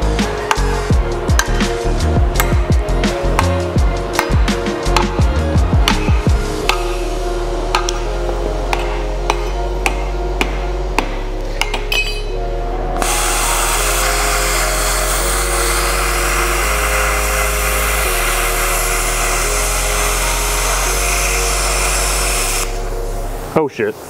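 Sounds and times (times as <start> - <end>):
background music: 0.0 - 24.0
hammer blows on metal: 5.8 - 7.1
plasma cutter hissing: 13.0 - 22.8.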